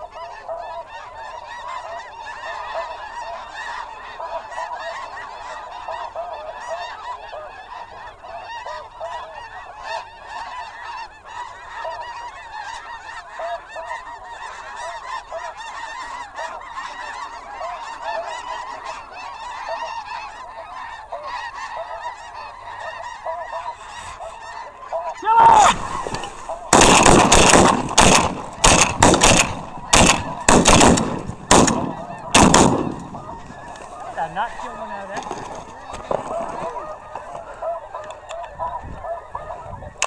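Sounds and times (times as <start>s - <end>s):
geese honking: 0.0s - 40.0s.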